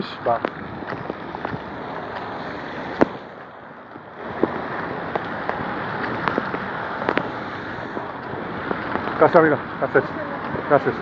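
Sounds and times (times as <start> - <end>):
water running on road: 0.0 - 11.0
sharp clicks and pops: 0.3 - 2.3, 2.9 - 9.3
heavy rain hissing: 4.1 - 11.0.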